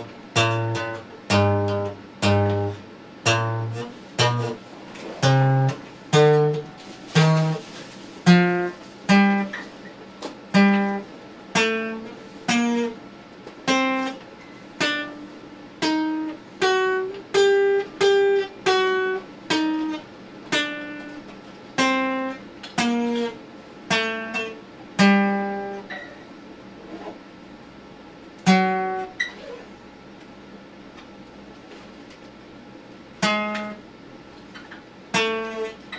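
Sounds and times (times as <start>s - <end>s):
acoustic guitar strummed chords: 0.0s - 13.0s, 13.6s - 26.1s, 28.4s - 29.4s, 33.2s - 33.9s, 34.6s - 35.9s.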